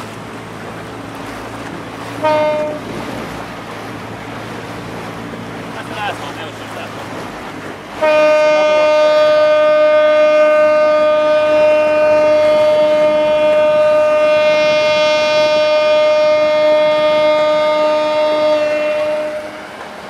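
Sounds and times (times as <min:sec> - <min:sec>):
ship's horn long blast: 0:01.2 - 0:03.5, 0:07.8 - 0:20.0.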